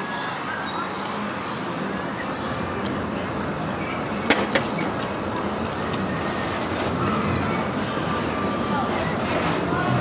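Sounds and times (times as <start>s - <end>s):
crowd hubbub of distant voices: 0.0s - 10.0s.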